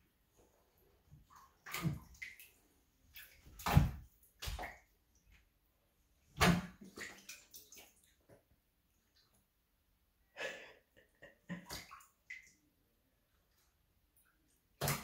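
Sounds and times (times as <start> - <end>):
faint water splashes: 0.7 - 5.4, 6.2 - 9.5, 11.2 - 12.8.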